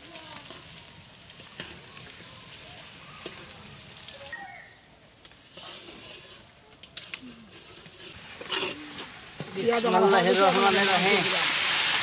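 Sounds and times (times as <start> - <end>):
onions sizzling in hot oil: 0.0 - 4.6, 7.5 - 12.0.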